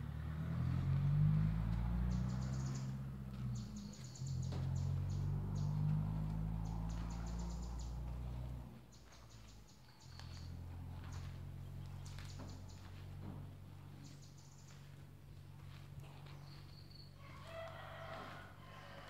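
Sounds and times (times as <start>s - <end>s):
low engine hum: 0.0s - 19.0s
bird chirps: 2.1s - 6.0s, 6.6s - 8.0s, 8.9s - 13.0s, 14.0s - 14.9s, 16.2s - 17.2s.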